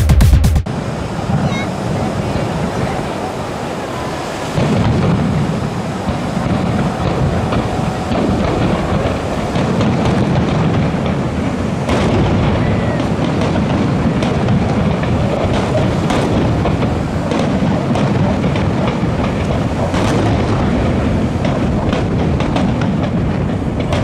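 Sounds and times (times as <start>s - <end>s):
fireworks bangs and cracks: 0.0s - 24.0s.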